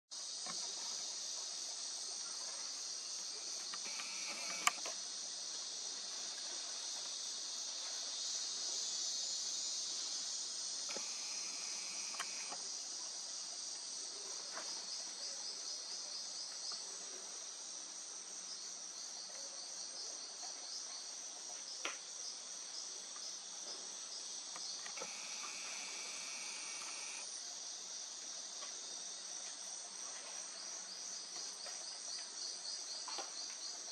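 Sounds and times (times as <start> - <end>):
crickets chirring: 0.2 - 33.9
low insect buzz: 2.0 - 15.3, 23.4 - 28.2
sharp clicks: 3.7 - 4.9, 10.9 - 12.6.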